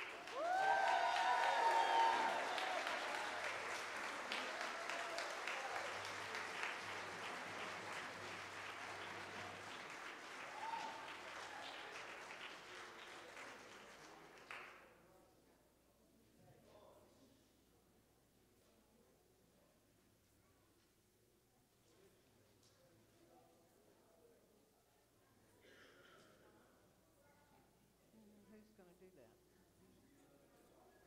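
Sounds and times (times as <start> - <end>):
audience applauding: 0.0 - 14.9.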